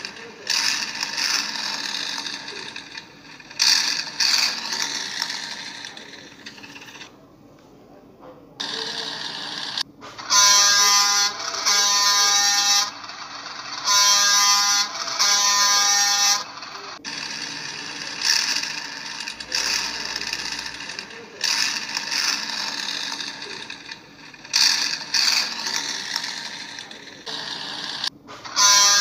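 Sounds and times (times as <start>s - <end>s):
horn-like buzzing tone: 8.7s - 16.9s, 21.5s - 29.0s.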